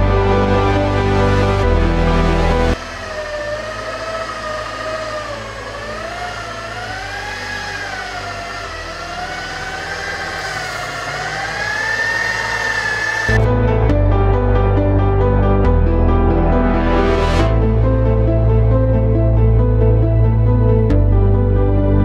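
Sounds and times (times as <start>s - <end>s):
rotary polisher motor whine: 2.7s - 13.4s.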